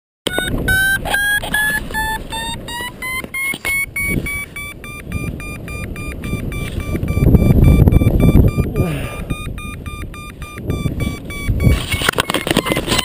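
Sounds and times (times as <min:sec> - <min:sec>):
variometer beeping: 0:00.3 - 0:13.0
wind noise: 0:00.3 - 0:13.0.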